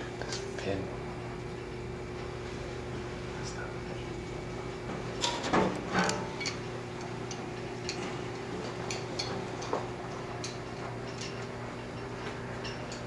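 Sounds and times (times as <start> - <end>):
steady low hum: 0.0 - 13.0
freezing pipe ticking and clicking: 6.1 - 13.0.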